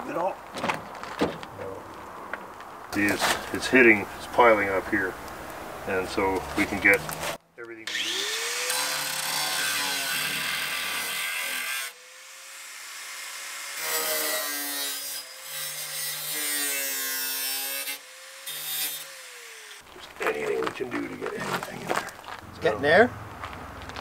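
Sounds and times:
grinder motor whine: 7.9 - 10.8
grinder cutting metal: 7.9 - 19.8.

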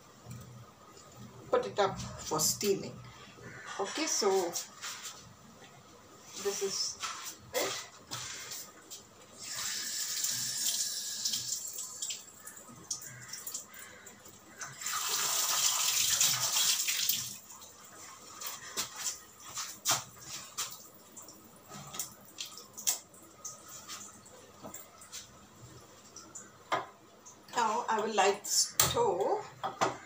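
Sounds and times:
water running from tap: 9.4 - 25.3.

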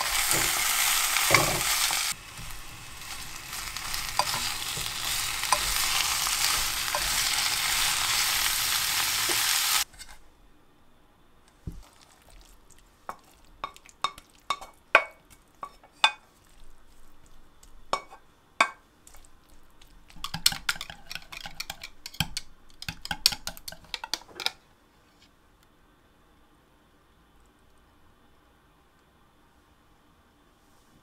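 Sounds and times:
fork tapping against a pan: 17.9 - 18.8, 20.2 - 24.6.

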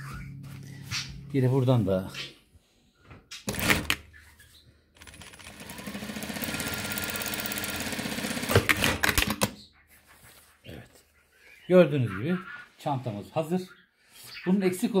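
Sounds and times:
sewing machine stitching: 5.0 - 9.2.

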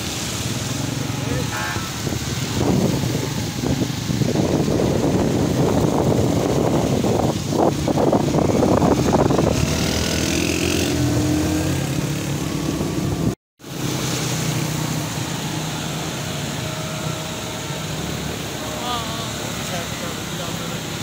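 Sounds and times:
wind buffeting microphone: 0.5 - 13.4.

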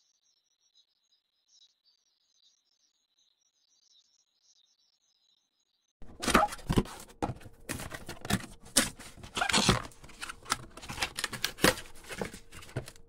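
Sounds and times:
cardboard and foam rustling: 6.0 - 13.0.

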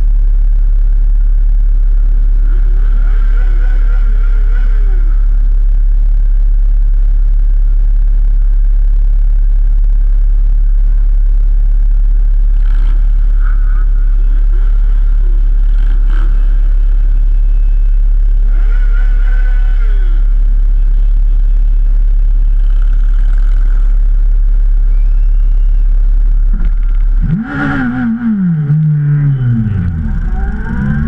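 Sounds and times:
motorcycles idling: 0.0 - 31.0
motorcycle engines revving: 2.0 - 5.7, 12.5 - 31.0.

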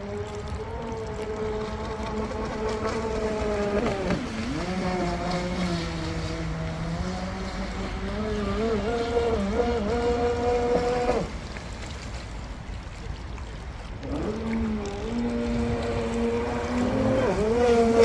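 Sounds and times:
electric speedboat motor whine: 0.0 - 11.6, 13.9 - 18.0
low wind rumble: 0.0 - 18.0.

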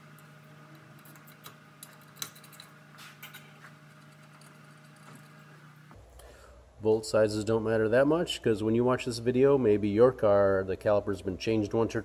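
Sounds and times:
hand tools clinking on metal: 1.0 - 5.4.

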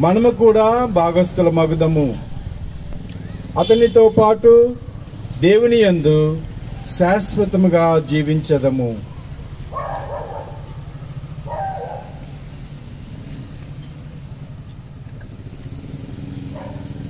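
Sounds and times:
low engine hum: 0.0 - 17.0.

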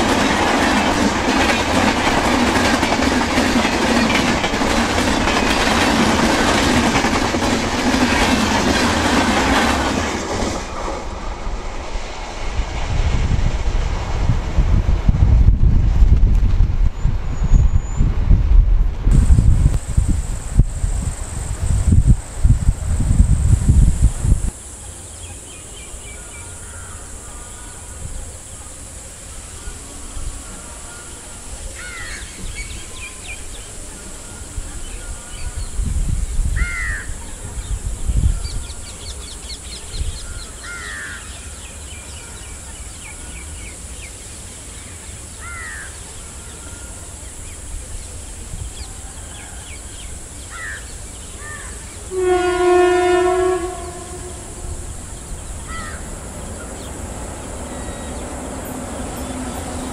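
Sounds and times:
bird calling: 50.5 - 59.9
train horn blast: 52.0 - 55.2.

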